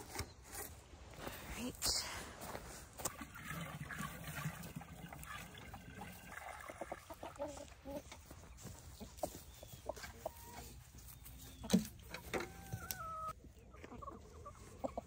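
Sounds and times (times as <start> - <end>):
water pouring from bucket: 3.0 - 7.4
hens clucking: 3.0 - 15.0.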